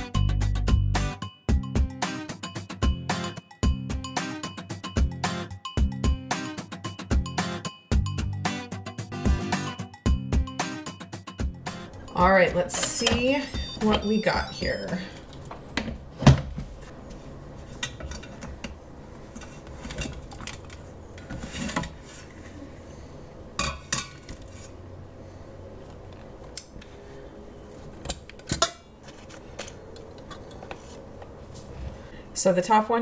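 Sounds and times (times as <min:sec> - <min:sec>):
steel pans clinking and knocking: 0:17.8 - 0:22.0, 0:23.6 - 0:24.4.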